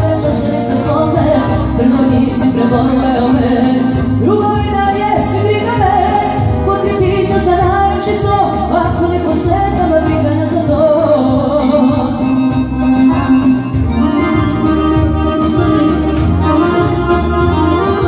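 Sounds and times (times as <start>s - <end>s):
accordions playing melody: 0.0s - 18.0s
keyboard accompaniment: 0.0s - 18.0s
steady beat: 9.5s - 18.0s.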